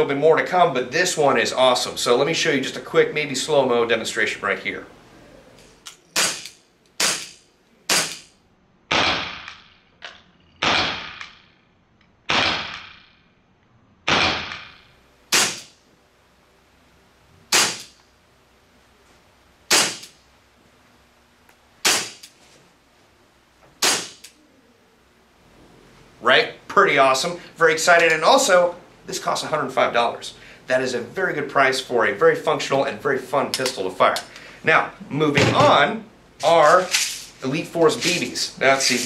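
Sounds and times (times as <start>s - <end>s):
airsoft pistol shots: 6.2s - 8.3s, 8.9s - 9.8s, 10.6s - 11.5s, 12.3s - 13.2s, 14.1s - 15.8s, 17.5s - 18.0s, 19.7s - 20.2s, 21.8s - 22.3s, 23.8s - 24.3s.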